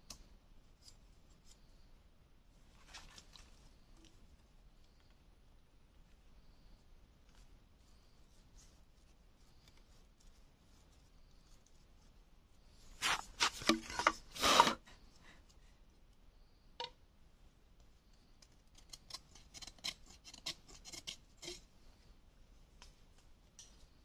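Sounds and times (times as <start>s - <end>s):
knife scraping bamboo: 12.9s - 14.9s, 18.7s - 21.7s.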